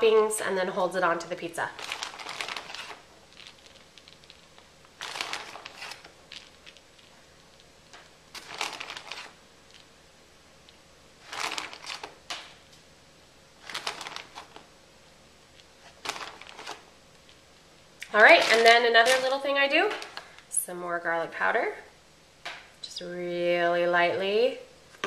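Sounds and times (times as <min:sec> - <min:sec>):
shredded cheese crinkling: 0:01.5 - 0:10.0, 0:10.6 - 0:12.6, 0:13.6 - 0:14.7, 0:15.5 - 0:20.5.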